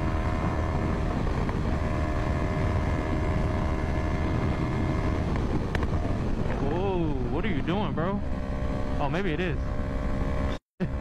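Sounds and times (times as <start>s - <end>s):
heavy wind noise: 0.0s - 11.0s
motorcycle engine cruising: 0.0s - 11.0s
road rumble: 0.0s - 11.0s.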